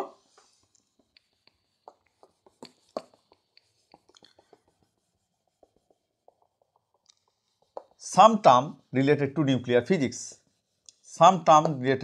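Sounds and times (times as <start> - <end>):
duster rubbing whiteboard: 2.3 - 6.4.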